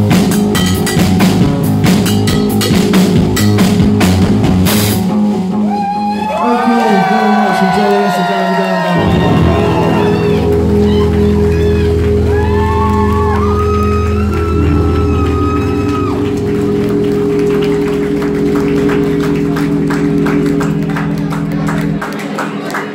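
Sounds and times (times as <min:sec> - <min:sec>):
crowd whooping: 0:05.5 - 0:22.9
crowd applauding: 0:05.7 - 0:22.9
droning amplified chord: 0:09.0 - 0:22.8.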